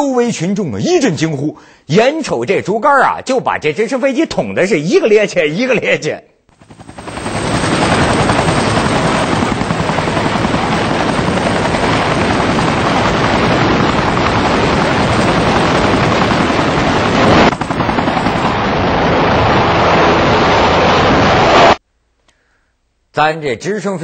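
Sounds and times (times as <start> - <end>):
helicopter rotor chopping: 6.5 - 21.8.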